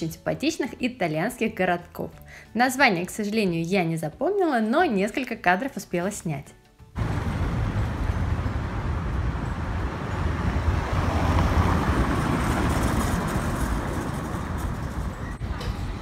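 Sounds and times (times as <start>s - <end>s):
motorcycle engine rumbling: 7.0s - 16.0s
road and traffic noise: 7.0s - 16.0s.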